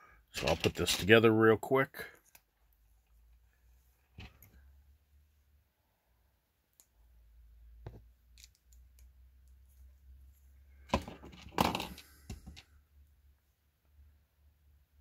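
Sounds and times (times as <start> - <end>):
plastic pieces clicking: 8.4 - 9.0.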